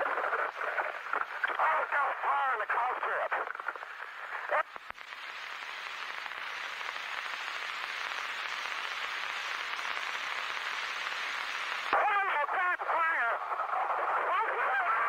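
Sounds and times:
distorted radio voice: 0:00.0 - 0:04.8, 0:11.9 - 0:15.0
radio static hiss: 0:00.0 - 0:15.0.

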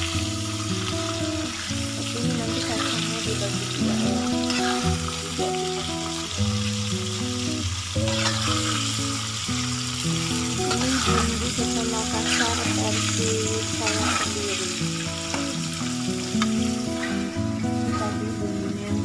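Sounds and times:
background music with held notes: 0:00.0 - 0:19.0
peanuts sizzling in hot oil: 0:00.0 - 0:19.0
metal spatula scraping pan: 0:08.1 - 0:08.8, 0:10.6 - 0:13.0.

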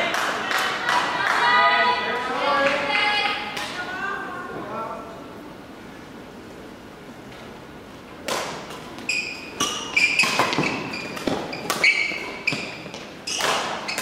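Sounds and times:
rackets striking shuttlecock: 0:08.2 - 0:14.0
shoes squeaking on floor: 0:09.0 - 0:14.0.

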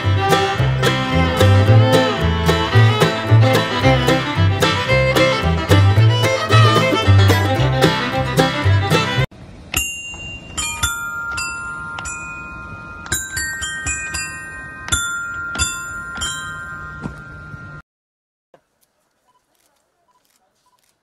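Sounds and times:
bell-like chime notes: 0:09.8 - 0:17.8.

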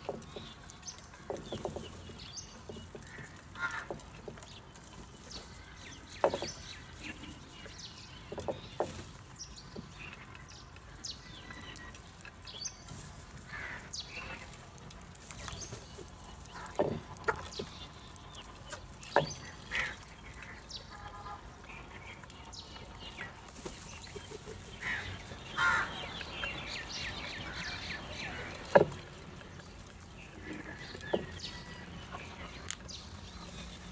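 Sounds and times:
beaks pecking against bowls: 0:00.0 - 0:33.9
crows cawing: 0:03.1 - 0:04.0, 0:13.5 - 0:13.9, 0:24.8 - 0:26.4.

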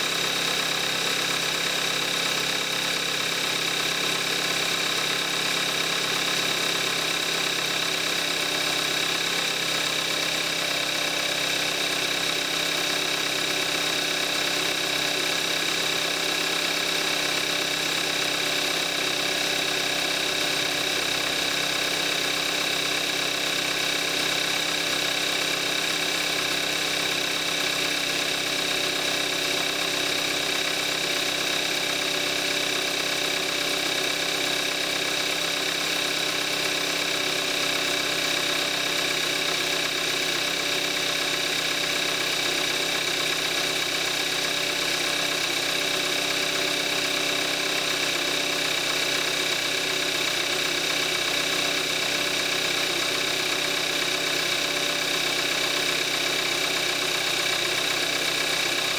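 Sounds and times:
car engine idling: 0:00.1 - 0:58.9.

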